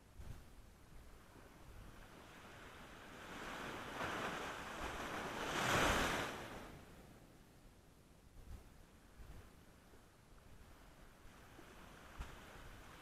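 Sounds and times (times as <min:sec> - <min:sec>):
wave washing up shore: 0:01.9 - 0:06.9.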